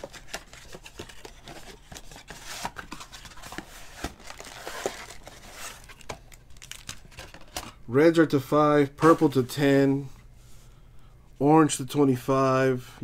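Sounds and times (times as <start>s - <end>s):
papery rustling and crinkling: 0.0s - 7.8s.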